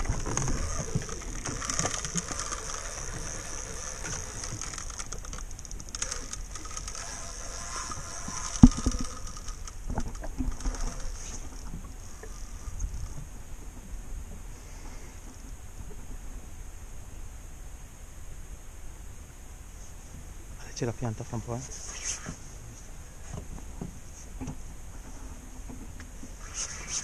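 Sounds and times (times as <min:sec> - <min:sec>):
fishing reel ticking and whirring: 0:00.0 - 0:13.2.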